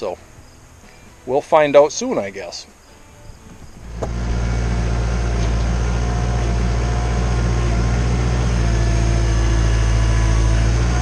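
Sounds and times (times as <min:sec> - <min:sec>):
tractor diesel engine running: 0:03.5 - 0:11.0.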